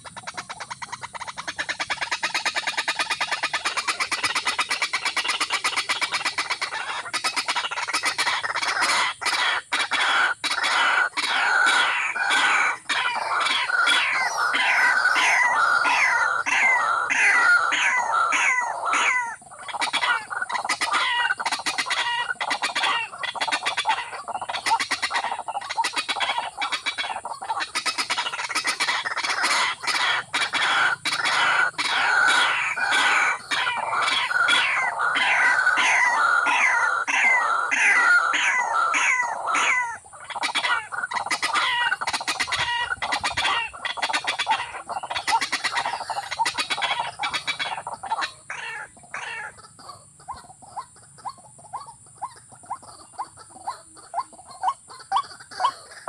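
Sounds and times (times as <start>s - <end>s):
waterbird clucking calls: 0.0s - 56.0s.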